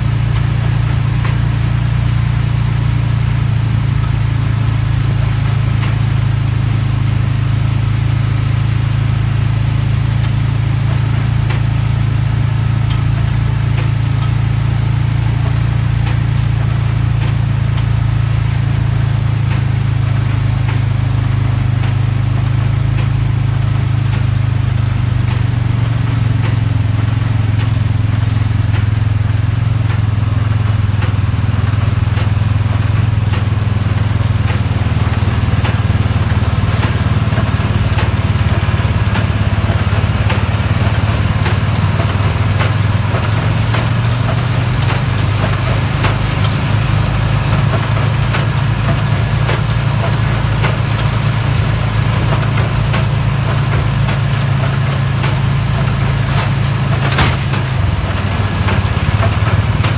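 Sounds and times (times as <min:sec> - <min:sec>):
tractor engine under load: 0:00.0 - 0:59.9.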